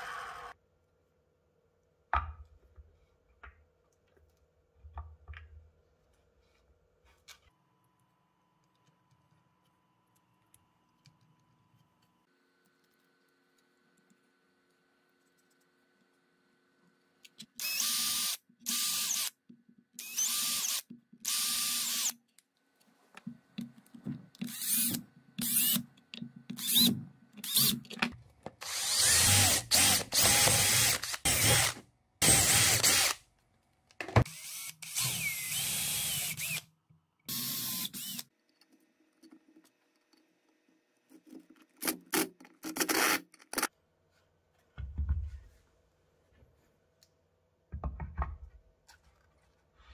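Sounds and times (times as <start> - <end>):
cordless drill drilling into wood: 17.6 - 19.3, 20.0 - 22.1, 28.6 - 33.2, 34.2 - 36.6, 37.3 - 38.2.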